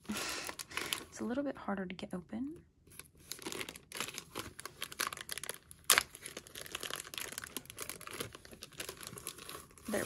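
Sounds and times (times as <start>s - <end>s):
plastic bag crinkling: 0.2s - 1.2s, 3.0s - 10.0s.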